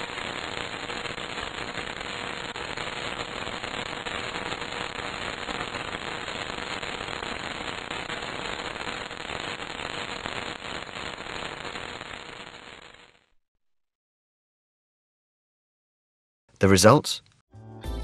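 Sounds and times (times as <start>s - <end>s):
dense crackling noise: 0.0s - 13.4s.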